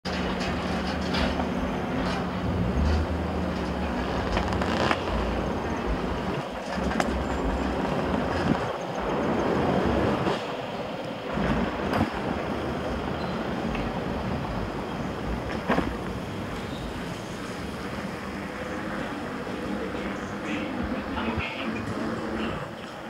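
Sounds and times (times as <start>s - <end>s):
mountain bike rattling and rolling: 0.1s - 23.0s
steady low hum: 0.6s - 10.2s.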